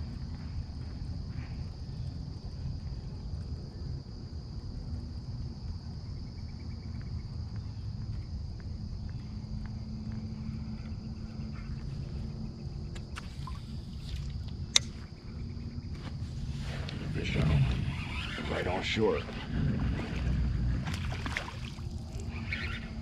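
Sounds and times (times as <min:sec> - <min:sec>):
insects chirring: 0:00.0 - 0:23.0
low rumble: 0:07.9 - 0:23.0
sharp click: 0:14.7 - 0:15.0.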